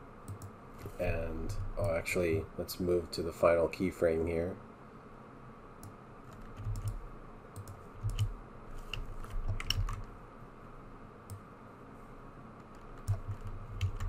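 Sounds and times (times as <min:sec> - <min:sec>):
faint room hiss: 0:00.0 - 0:14.0
keyboard and mouse clicking: 0:00.3 - 0:00.6, 0:05.8 - 0:07.0, 0:07.6 - 0:10.1, 0:12.6 - 0:14.0.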